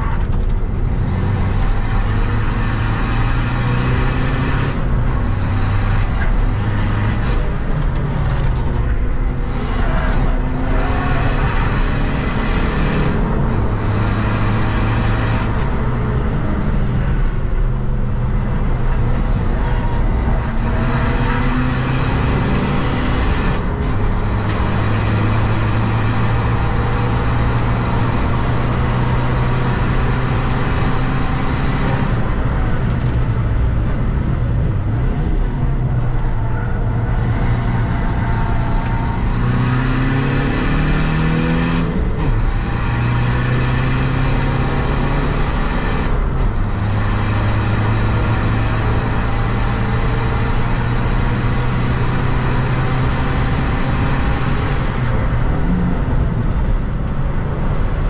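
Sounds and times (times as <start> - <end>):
tyre and road noise: 0.0 - 58.0
diesel engine revving hard: 0.8 - 8.6, 9.3 - 15.8, 19.2 - 32.6, 36.9 - 55.6.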